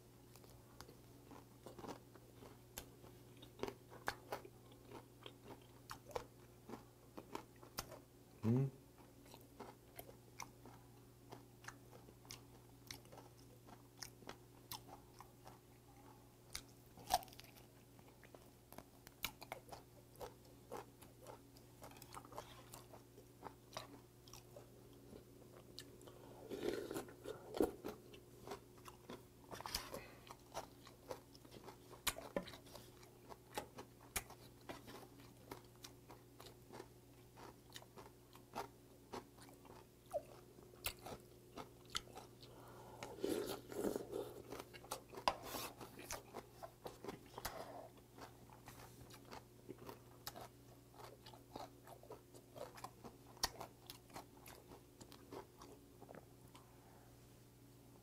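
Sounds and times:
faint steady hum: 0.0 - 58.0
person chewing with wet crunches: 0.2 - 56.7.

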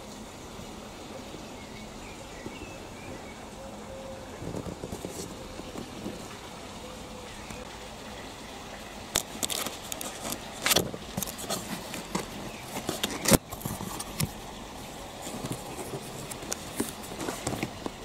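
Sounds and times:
cardboard box being opened: 4.4 - 6.4, 9.2 - 14.4, 15.2 - 18.0.

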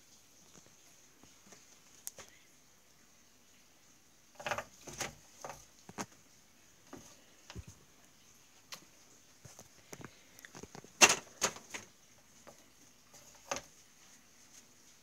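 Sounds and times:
handling clicks and knocks: 9.5 - 11.9.

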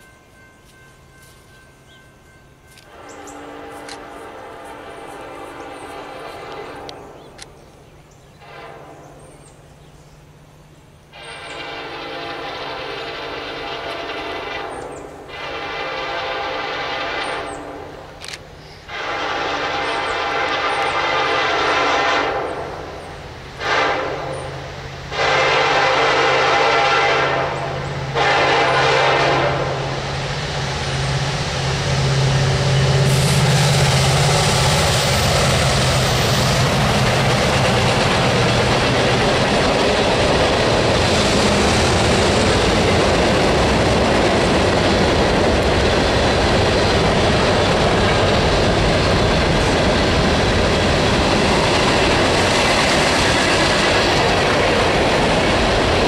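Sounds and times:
locomotive engines rumbling past: 0.0 - 56.0
locomotive air horn blasts: 2.8 - 7.0, 8.4 - 9.2, 11.1 - 18.1, 18.8 - 23.0, 23.6 - 30.1.

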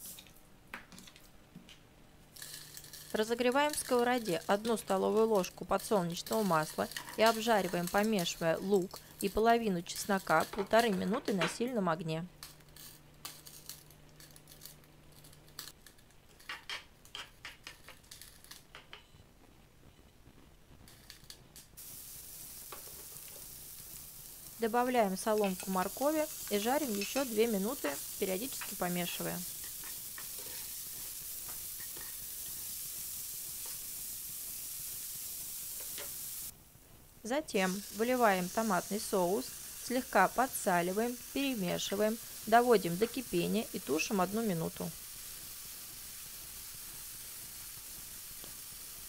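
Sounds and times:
vegetables sizzling in oil: 2.3 - 15.8, 20.8 - 49.0
spatula scraping in pan: 2.4 - 11.1, 25.3 - 32.6.

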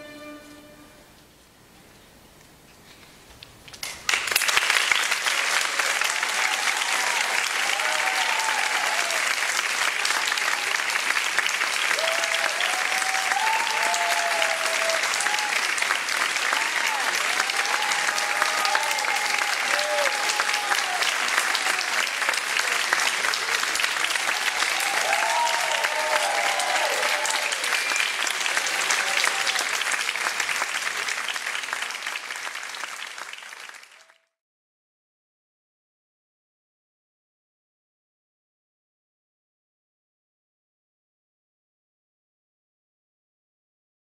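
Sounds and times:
audience applauding: 3.7 - 34.4
scattered cheers: 5.4 - 11.0, 11.8 - 29.9.

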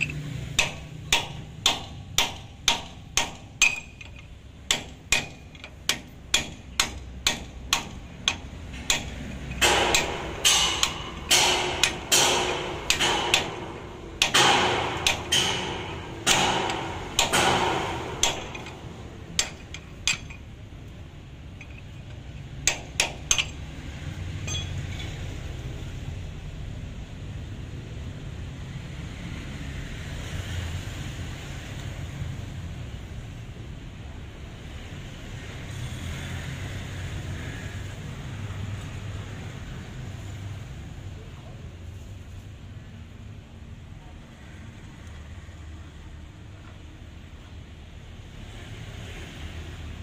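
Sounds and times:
hammer striking steel drift: 0.0 - 20.5, 21.5 - 23.7, 24.4 - 25.4.

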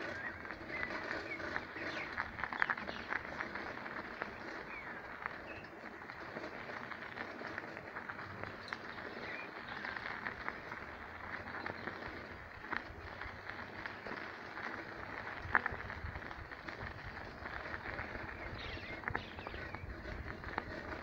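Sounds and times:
footsteps on gravel trail: 0.0 - 21.0
bird chirps: 18.3 - 19.9.

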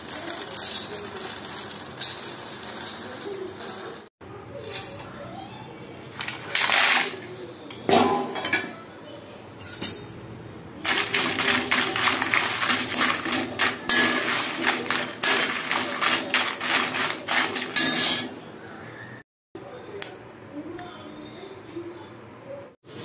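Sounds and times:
dry chillies rattling in pan: 0.0 - 4.1, 6.1 - 7.2, 10.8 - 18.4
steel ladle scraping iron pan: 10.9 - 18.4.

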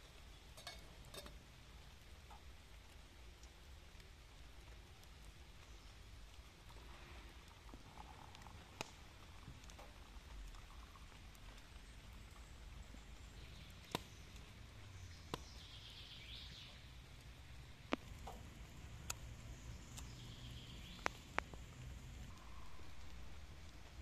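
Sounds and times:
quiet outdoor ambience: 0.0 - 24.0
tea pouring hiss: 6.3 - 12.8.

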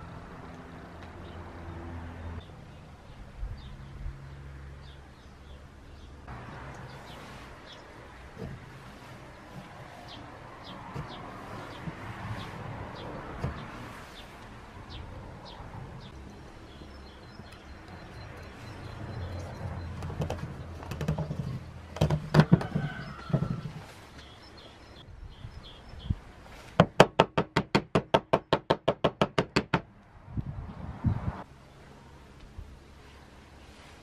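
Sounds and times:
dull wooden thumps: 19.9 - 23.8
rapid sharp wooden knocks: 22.0 - 23.5, 26.8 - 29.9.

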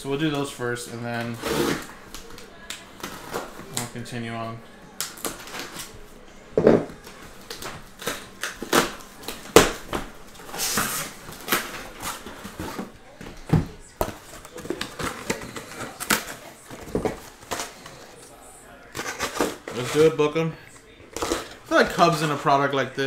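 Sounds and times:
tape tearing: 1.2 - 3.9, 7.4 - 12.9, 18.9 - 20.2.

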